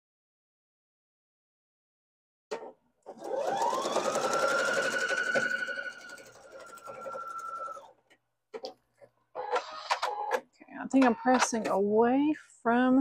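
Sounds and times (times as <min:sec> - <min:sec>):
sewing machine stitching: 0:02.6 - 0:08.0.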